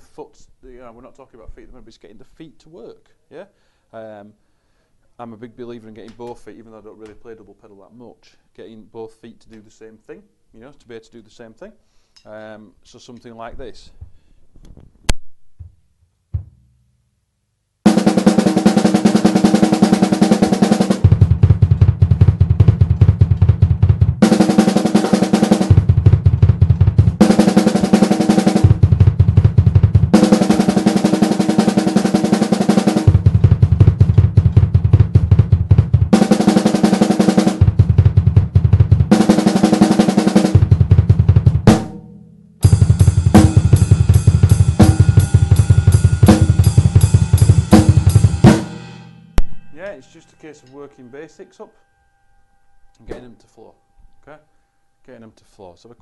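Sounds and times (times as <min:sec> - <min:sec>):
snare drum strokes: 0:17.9 - 0:22.9, 0:24.2 - 0:25.9, 0:27.1 - 0:29.2, 0:30.1 - 0:34.4, 0:36.1 - 0:40.8, 0:42.6 - 0:48.8
double pedal bass drum strokes: 0:17.9 - 0:50.1.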